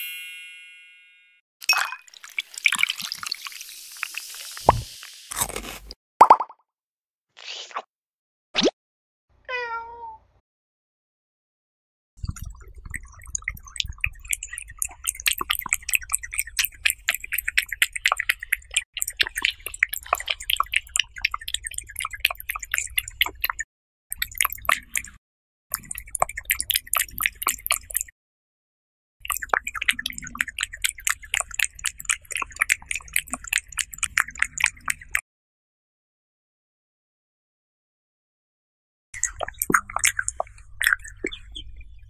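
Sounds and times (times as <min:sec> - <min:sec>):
cat eating wet food: 0:14.1 - 0:23.4, 0:29.3 - 0:35.1.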